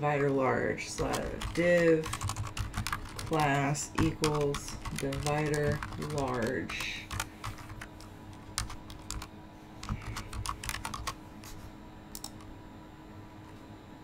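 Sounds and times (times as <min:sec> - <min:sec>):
keyboard typing: 0:00.9 - 0:11.2, 0:12.1 - 0:12.5.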